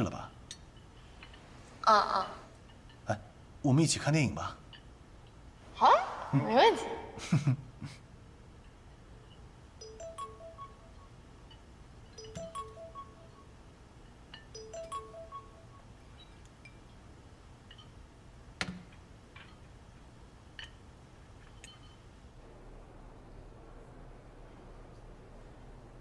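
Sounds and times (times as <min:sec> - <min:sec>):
soft chime-like music: 0:09.8 - 0:11.2, 0:12.1 - 0:13.6, 0:14.4 - 0:16.8.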